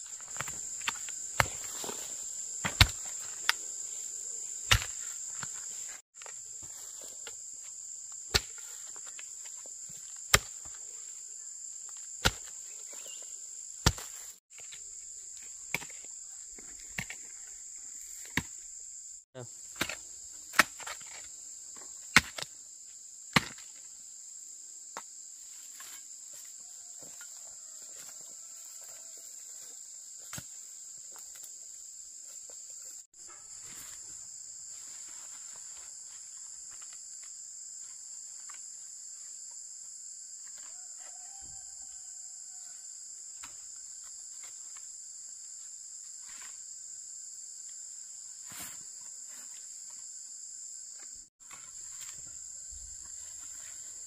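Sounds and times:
high-pitched insect chorus: 0.0 - 54.0.

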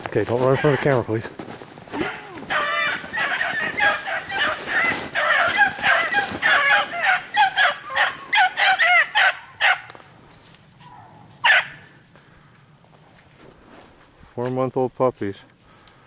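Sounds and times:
puppies yelping and baying: 2.0 - 10.0.

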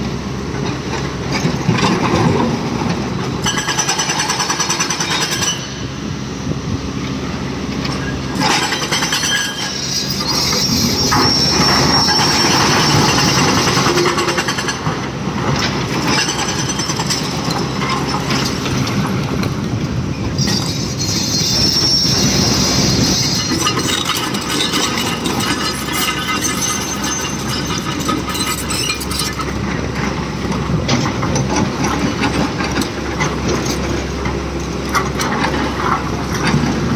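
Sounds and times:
heavy machinery running: 0.0 - 36.9
high metallic squeal: 8.0 - 14.3, 20.3 - 29.4.

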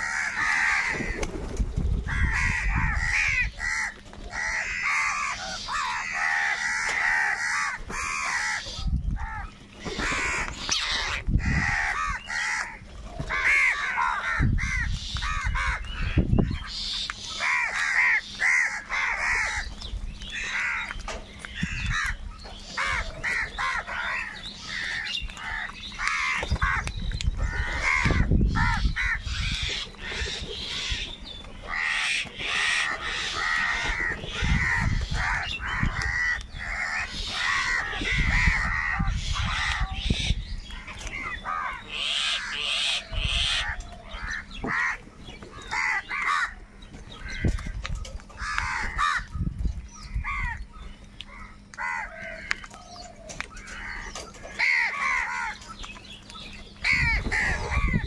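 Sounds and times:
crows cawing: 0.0 - 49.3, 50.1 - 56.2, 56.8 - 58.0.

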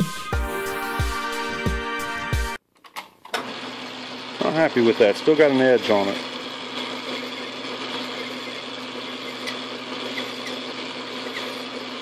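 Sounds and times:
metal lathe humming: 4.0 - 12.0
hand file on spinning steel: 4.5 - 12.0.

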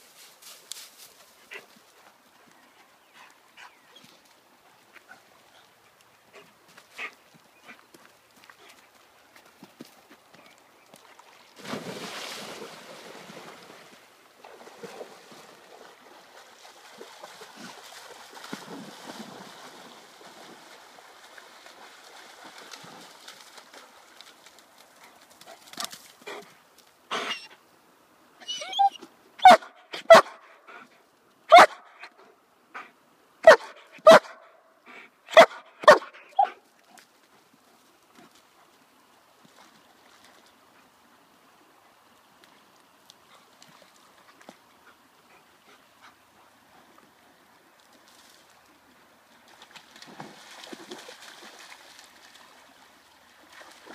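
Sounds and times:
river water running: 0.0 - 53.9
dog barking: 29.4 - 30.4, 31.5 - 31.9, 33.4 - 34.4, 35.3 - 36.5.

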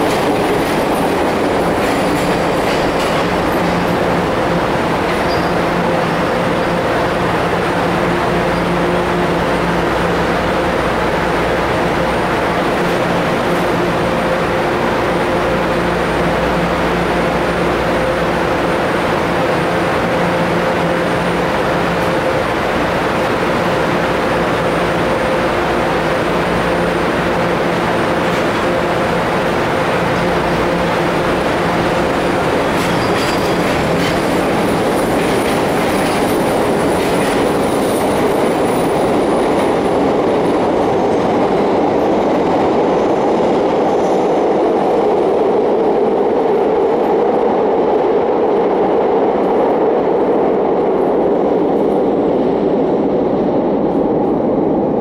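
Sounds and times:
clicking train wheels: 0.0 - 5.8, 31.9 - 44.8
subway train hum: 0.0 - 55.0
train rumbling in tunnel: 0.0 - 55.0
high wheel squeal: 5.2 - 5.6.

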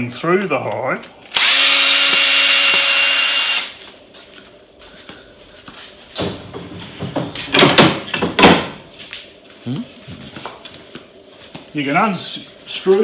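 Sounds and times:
tools and wood knocking: 6.2 - 8.8.

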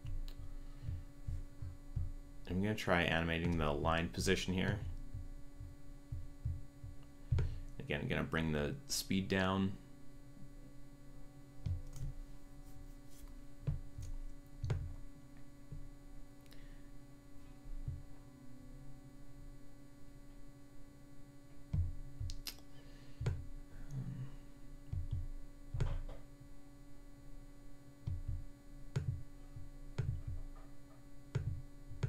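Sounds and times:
electrical hum: 0.0 - 32.0.

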